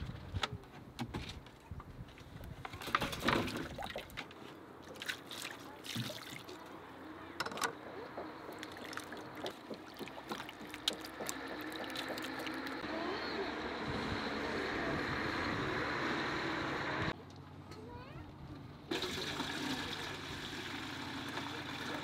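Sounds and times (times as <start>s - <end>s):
water splashing: 3.4s - 6.7s, 8.5s - 12.8s.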